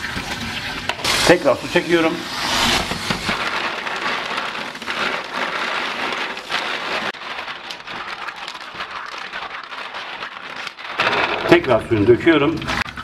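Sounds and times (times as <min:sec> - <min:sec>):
water splashing: 0:00.0 - 0:13.0
wet shells clattering together: 0:03.2 - 0:11.9.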